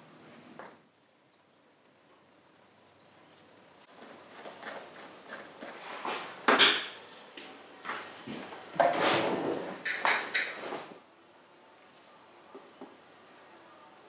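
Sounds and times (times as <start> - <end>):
metal drawers sliding open and shut: 8.8 - 10.9.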